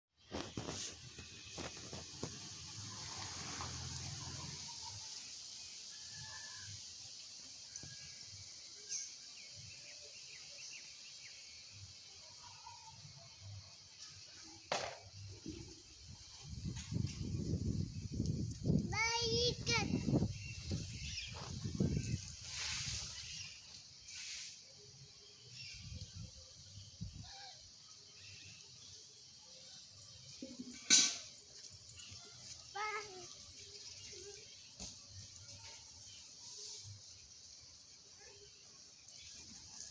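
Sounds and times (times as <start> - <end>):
steady high hiss: 0.2 - 39.9
small birds chirping: 15.0 - 39.9
rustling whoosh: 20.2 - 24.6.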